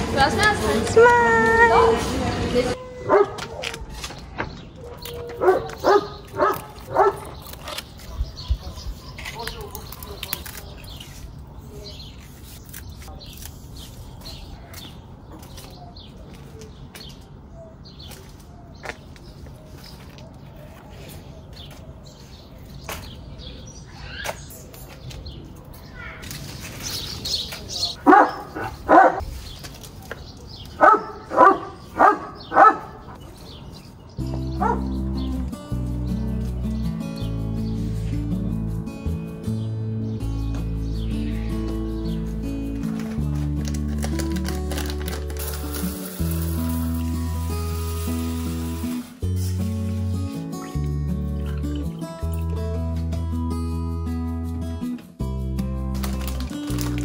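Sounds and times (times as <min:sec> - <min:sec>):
dog barking: 0:03.0 - 0:03.6, 0:04.9 - 0:07.4, 0:28.0 - 0:29.2, 0:30.8 - 0:33.2, 0:34.6 - 0:34.9.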